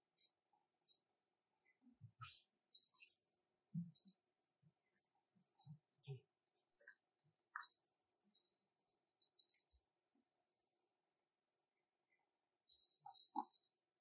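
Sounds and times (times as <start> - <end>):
birds chirping in trills: 2.7 - 4.3, 7.6 - 9.9, 12.6 - 14.0.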